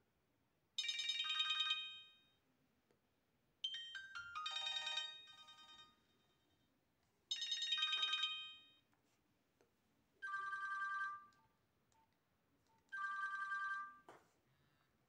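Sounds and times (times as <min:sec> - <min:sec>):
electronic ringtone melody: 0:03.7 - 0:06.0, 0:10.2 - 0:11.3, 0:12.9 - 0:14.1.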